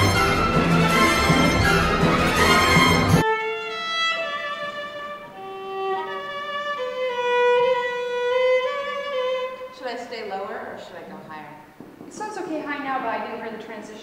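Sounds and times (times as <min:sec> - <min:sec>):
loud dense music: 0:00.0 - 0:03.4
solo violin slow melody: 0:01.7 - 0:09.8.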